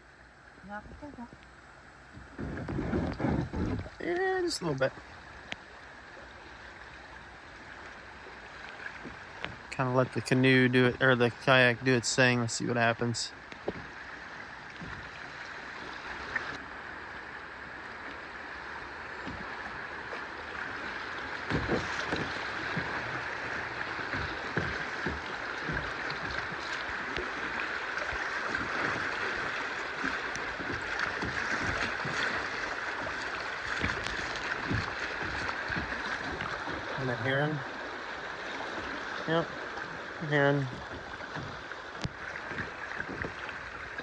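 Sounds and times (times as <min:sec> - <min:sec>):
rapids rushing and splashing: 0:00.0 - 0:44.0
short low knocks: 0:21.4 - 0:27.3, 0:33.7 - 0:36.9.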